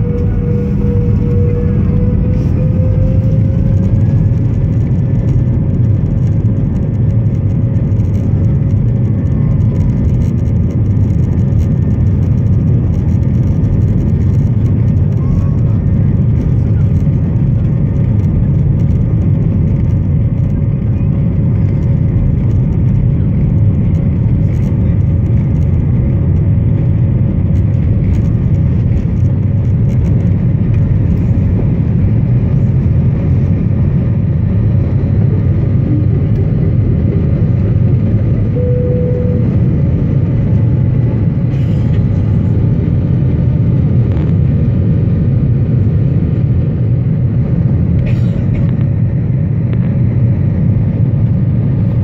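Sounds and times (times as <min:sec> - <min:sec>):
jet engines rumbling: 0:00.0 - 0:52.0
steady engine tone: 0:00.0 - 0:52.0.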